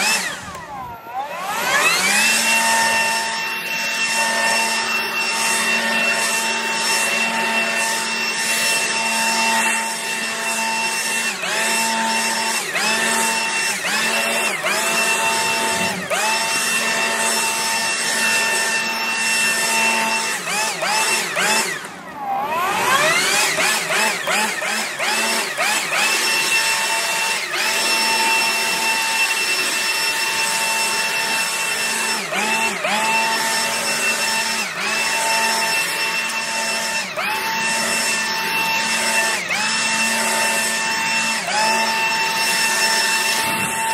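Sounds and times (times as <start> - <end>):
leaf blower whining: 0.0 - 43.9.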